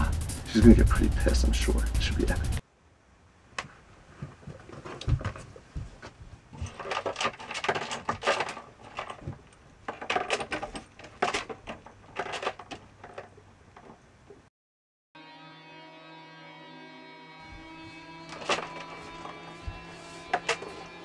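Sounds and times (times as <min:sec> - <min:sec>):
small hard items clinking: 0:06.6 - 0:14.0.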